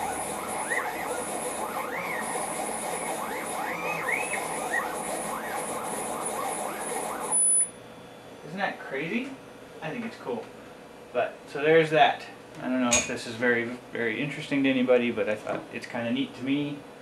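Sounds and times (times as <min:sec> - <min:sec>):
stepper motors whining: 0:00.0 - 0:07.8
loud high whine: 0:00.0 - 0:09.1.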